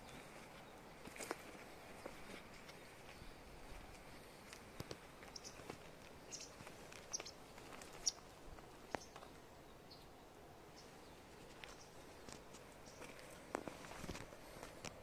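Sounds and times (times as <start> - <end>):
faint outdoor ambience: 0.0 - 15.0
high bird chirps: 5.3 - 7.4, 8.0 - 8.3.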